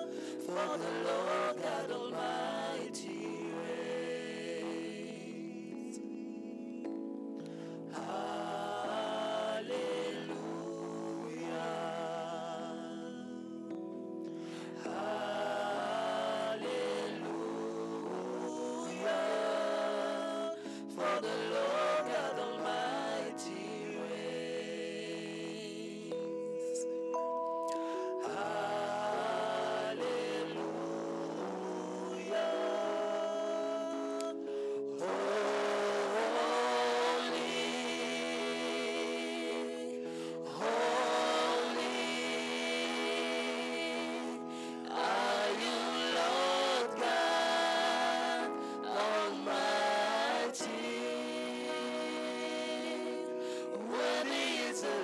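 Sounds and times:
man singing a hymn: 0.0s - 6.9s, 7.9s - 13.7s, 14.7s - 26.8s, 28.2s - 55.0s
electronic keyboard chords: 0.0s - 55.0s.

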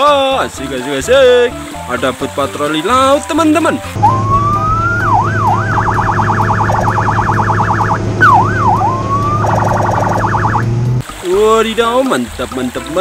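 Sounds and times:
electronic police siren: 4.0s - 10.7s
steady low hum: 5.0s - 11.0s.

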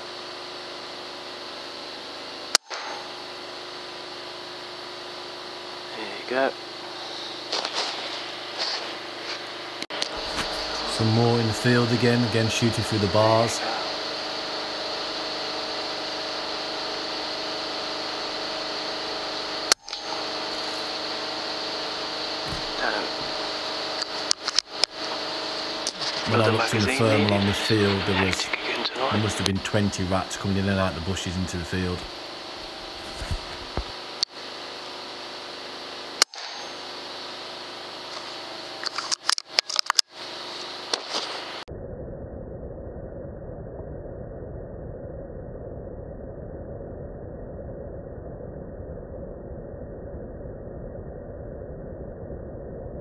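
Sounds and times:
steady hum and hiss: 0.0s - 41.7s
air rifle shot crack: 36.2s - 36.8s.

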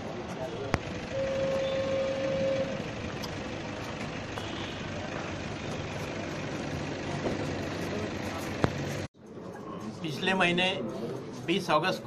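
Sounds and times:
outdoor noise: 0.0s - 12.0s
vehicle engine running: 0.2s - 9.1s.

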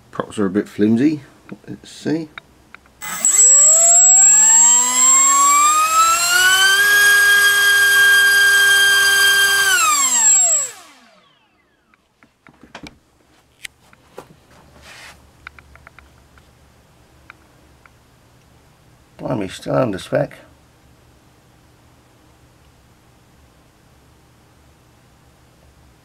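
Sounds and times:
electric motor whine: 3.0s - 11.7s.

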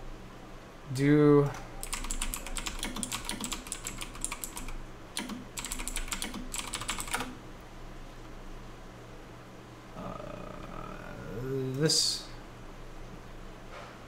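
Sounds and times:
faint steady hum: 0.0s - 14.0s
fast keyboard typing: 1.8s - 7.4s.

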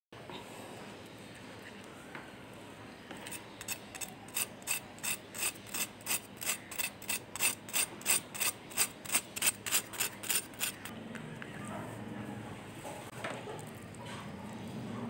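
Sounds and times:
knife sawing through crisp crust: 3.2s - 10.9s.

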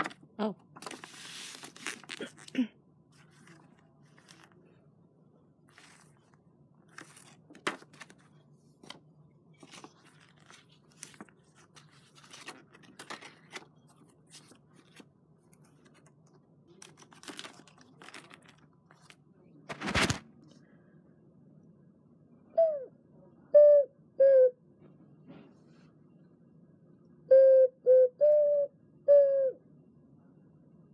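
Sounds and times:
paper rustling and tapping: 0.8s - 2.2s, 6.9s - 9.0s, 9.6s - 15.0s.

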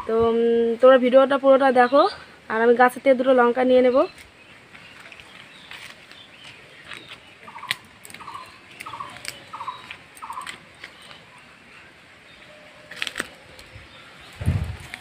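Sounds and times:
leaves rustling: 0.0s - 15.0s
animal or bird calling: 4.9s - 15.0s
stems snapping: 6.8s - 11.2s, 12.9s - 13.7s.

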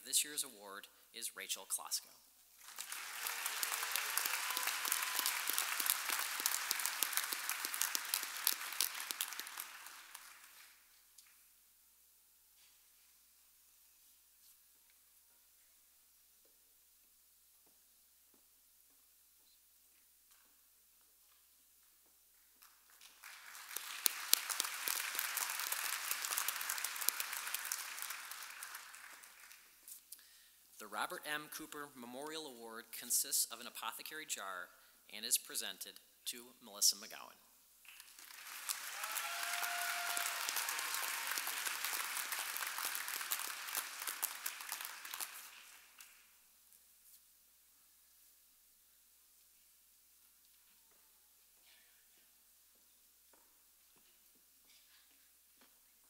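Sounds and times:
audience applauding: 2.6s - 10.8s, 22.6s - 29.8s, 37.9s - 46.3s.

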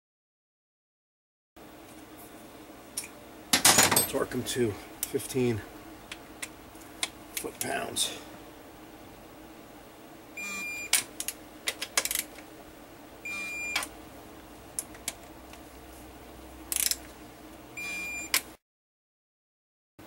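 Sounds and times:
wrench and socket clicking: 16.7s - 17.0s.

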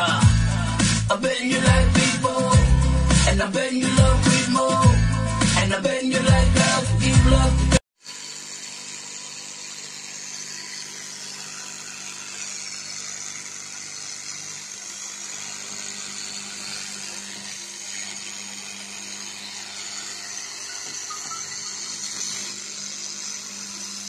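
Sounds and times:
music: 0.0s - 7.8s
laser welder humming and hissing: 8.0s - 24.0s.

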